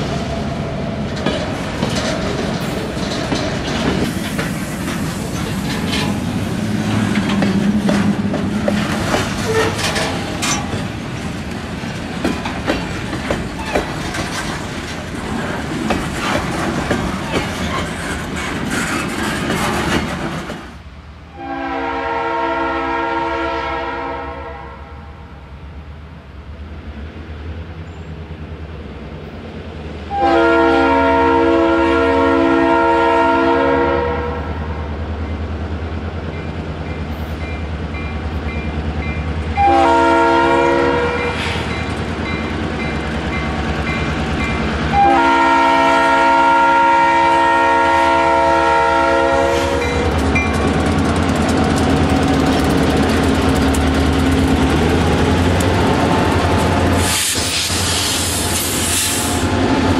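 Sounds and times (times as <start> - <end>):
locomotive air horn blasts: 21.3 - 25.0, 30.1 - 34.6, 39.6 - 41.5, 44.9 - 50.2
locomotive engine rumble: 35.1 - 59.9.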